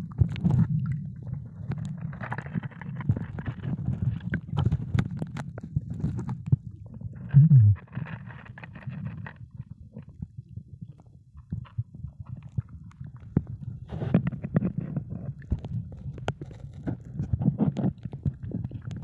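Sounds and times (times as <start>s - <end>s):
underwater bubbling rumble: 0.0s - 19.0s
short falling low groan: 7.4s - 7.8s.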